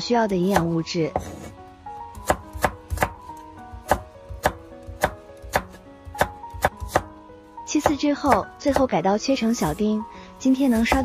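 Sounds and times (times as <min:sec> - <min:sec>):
knife chopping on wooden board: 0:00.5 - 0:01.5, 0:02.1 - 0:07.1, 0:07.8 - 0:08.9, 0:10.7 - 0:11.0.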